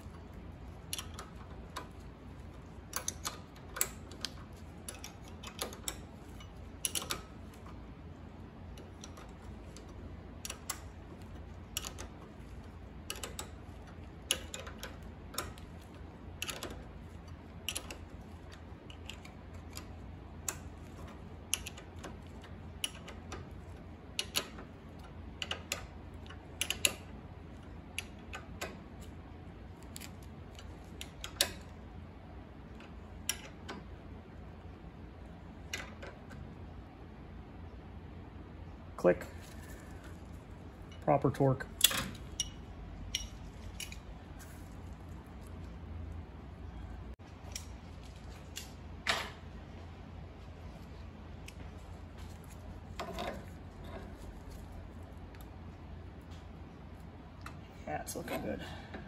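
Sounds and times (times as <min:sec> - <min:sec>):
socket ratchet clicking: 0:00.0 - 0:02.0, 0:02.6 - 0:07.7, 0:24.2 - 0:27.2
steady low hum: 0:00.0 - 0:59.0.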